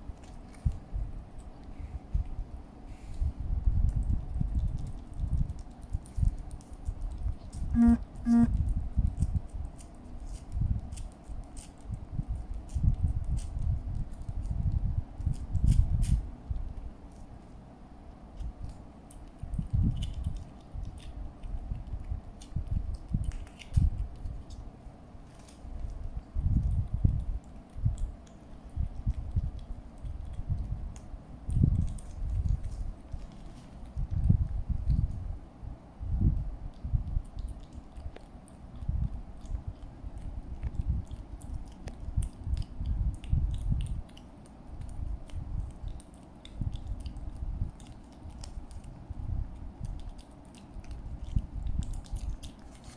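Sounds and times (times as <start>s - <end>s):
kitten licking and chewing: 0.0s - 52.9s
small wet smacks and clicks: 3.6s - 7.7s, 18.1s - 35.2s, 36.6s - 52.9s.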